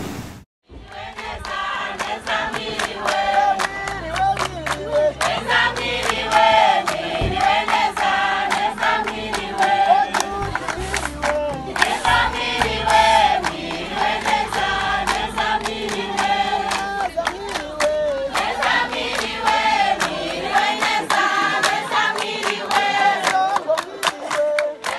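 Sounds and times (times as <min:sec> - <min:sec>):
group singing in chorus: 0:00.7 - 0:24.9
sharp percussive hits: 0:05.2 - 0:20.2.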